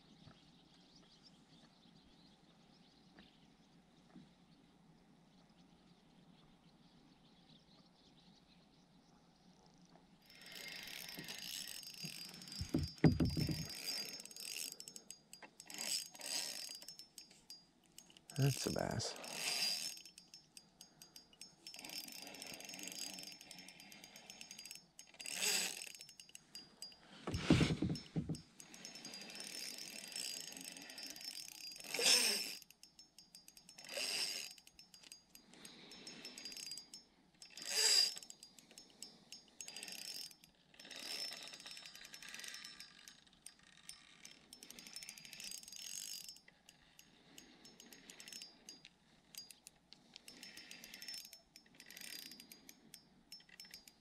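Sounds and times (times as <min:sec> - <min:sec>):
fishing reel gears ticking: 0:10.2 - 0:54.0.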